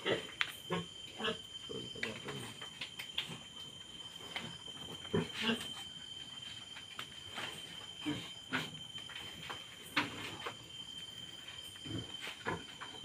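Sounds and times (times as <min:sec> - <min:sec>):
pigs grunting and squeaking: 0:00.0 - 0:01.5, 0:04.3 - 0:06.0, 0:07.5 - 0:08.9, 0:11.7 - 0:13.0
crickets trilling: 0:00.0 - 0:13.0.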